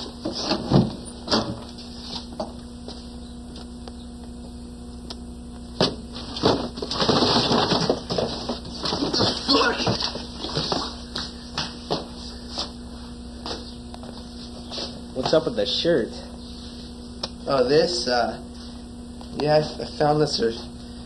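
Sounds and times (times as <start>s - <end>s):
rummaging through junk by hand: 5.8s - 11.0s.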